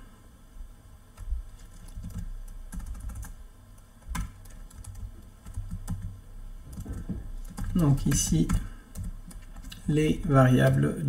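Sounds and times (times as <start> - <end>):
typing on a computer keyboard: 1.2 - 9.8.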